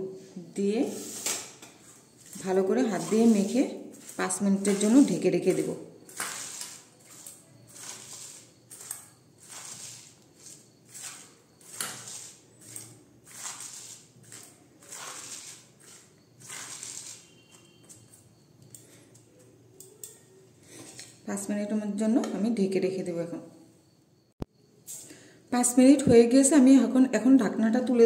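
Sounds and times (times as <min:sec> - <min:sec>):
cabbage rustling crunch in bowl: 0:02.2 - 0:17.2.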